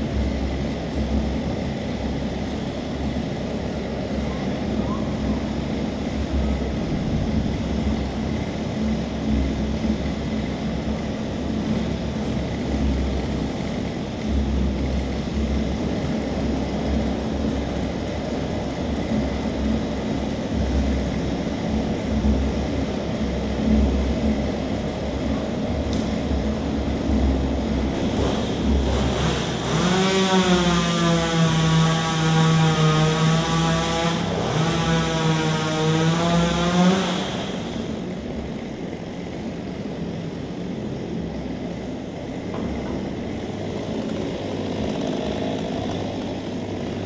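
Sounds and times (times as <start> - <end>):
chainsaw engine revving: 27.8 - 38.1, 43.8 - 47.0.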